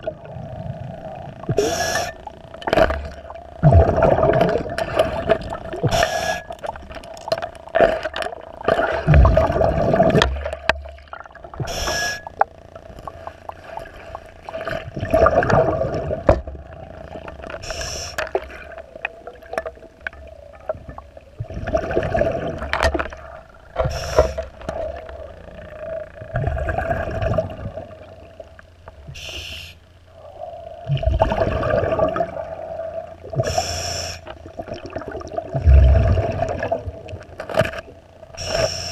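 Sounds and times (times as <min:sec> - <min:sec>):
exhaled bubbles underwater: 0:00.0 - 0:29.3, 0:30.1 - 0:38.9
steady hum: 0:00.0 - 0:38.9
regulator inhalation hiss: 0:01.6 - 0:02.3, 0:05.8 - 0:06.5, 0:11.6 - 0:12.3, 0:17.6 - 0:18.2, 0:23.8 - 0:24.5, 0:29.1 - 0:29.8, 0:33.4 - 0:34.3, 0:38.4 - 0:38.9.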